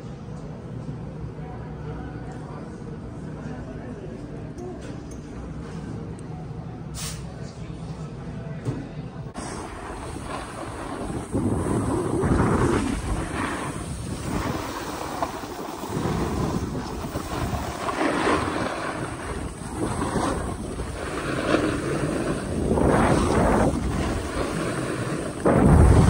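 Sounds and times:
snowboard scraping over snow: 9.4 - 26.0
wind rushing over microphone: 9.4 - 26.0.

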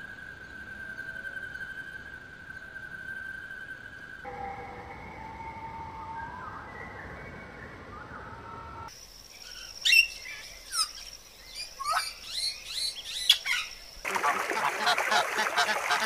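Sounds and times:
steady thin high tone: 0.0 - 6.8
gliding whistled bird notes: 0.0 - 14.1
sharp downward bird chirps: 9.4 - 13.9.

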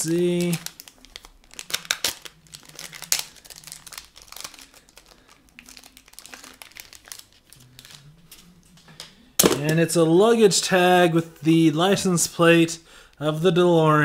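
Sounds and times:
plastic packaging crinkling: 0.0 - 9.9.

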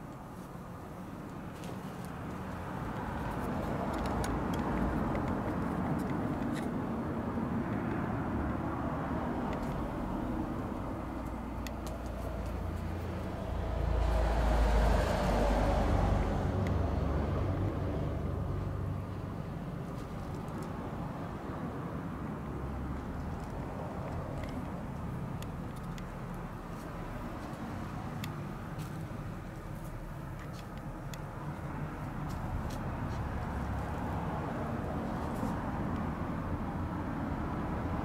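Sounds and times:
road traffic passing: 0.0 - 38.0
vehicle passing by: 1.6 - 30.2.

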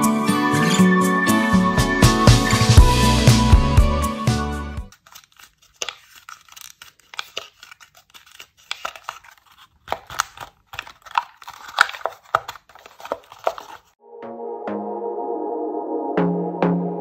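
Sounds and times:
folded paper clicking and crinkling: 4.9 - 14.0.

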